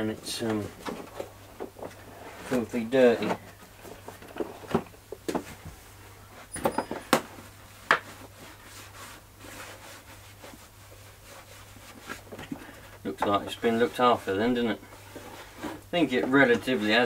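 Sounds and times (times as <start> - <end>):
cloth rubbing plastic box: 7.4 - 15.8.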